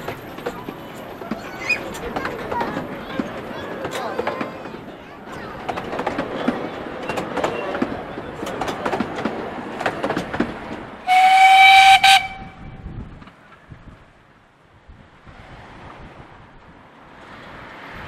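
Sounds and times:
carriages rattling over rail joints: 0.0 - 13.7
steam locomotive whistle: 11.0 - 12.8.

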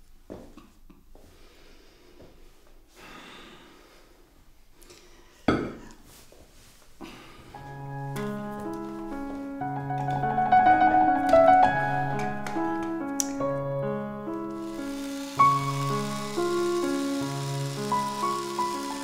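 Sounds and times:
piano music with slow notes: 7.5 - 19.0
small click: 13.2 - 13.4.

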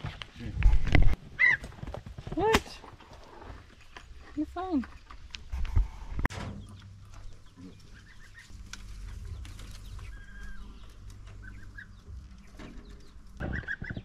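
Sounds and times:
low rumble: 5.4 - 13.4
chicks peeping: 6.6 - 14.0.

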